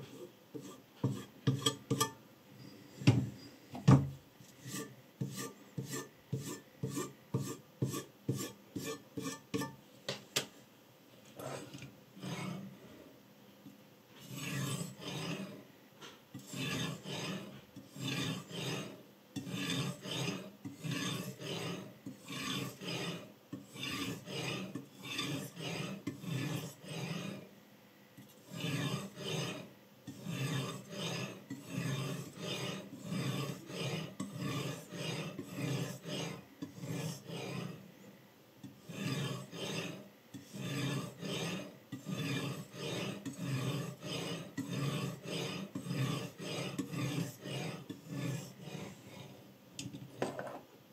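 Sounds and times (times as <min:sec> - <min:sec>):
sharpening stone scraping knife edge: 0:00.1 - 0:02.2, 0:04.6 - 0:09.8, 0:12.2 - 0:12.6, 0:14.2 - 0:15.6, 0:16.3 - 0:27.4, 0:28.2 - 0:37.8, 0:38.6 - 0:49.4.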